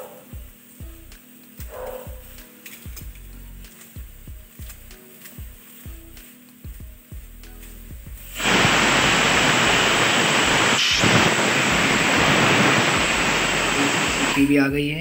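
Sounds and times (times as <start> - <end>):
pressure cooker whistle hissing: 8.3 - 14.6.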